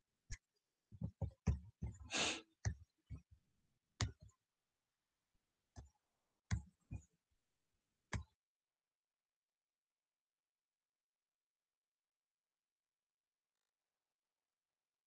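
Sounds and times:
mouse clicks and desk knocks: 0:01.0 - 0:02.1
soft breath: 0:02.0 - 0:02.5.

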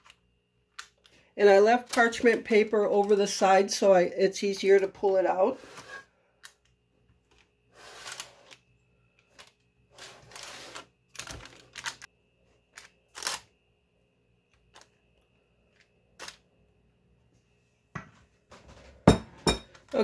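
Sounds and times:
paper rustling: 0:09.3 - 0:12.1.

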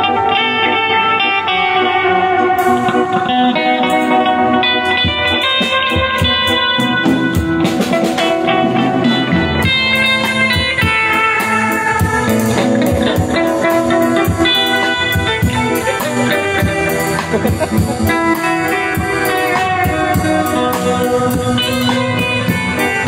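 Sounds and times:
amplified electric guitar: 0:00.0 - 0:23.0
drum kit playing: 0:00.0 - 0:23.0.

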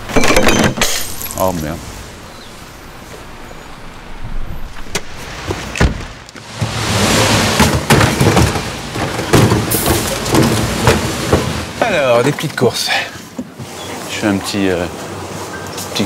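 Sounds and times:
wet street traffic noise: 0:00.8 - 0:16.0
wheelie bins tipping over: 0:05.4 - 0:12.8.

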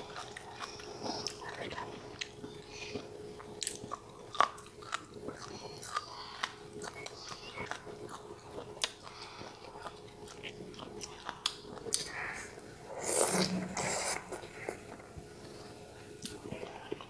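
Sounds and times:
wet crunchy chewing: 0:00.0 - 0:12.2
faint steady hum: 0:00.0 - 0:17.0.

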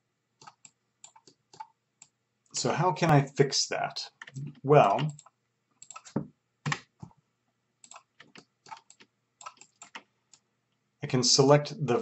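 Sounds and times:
keyboard and mouse clicking: 0:00.4 - 0:01.7, 0:04.2 - 0:07.0, 0:07.8 - 0:10.4.

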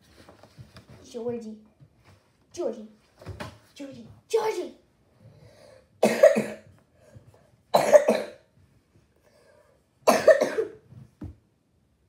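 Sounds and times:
girl coughing: 0:06.0 - 0:06.7, 0:07.7 - 0:08.5, 0:10.1 - 0:10.8.

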